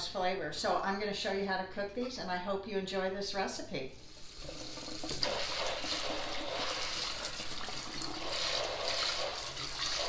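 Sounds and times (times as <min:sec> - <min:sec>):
tap water spraying: 0:04.2 - 0:10.0.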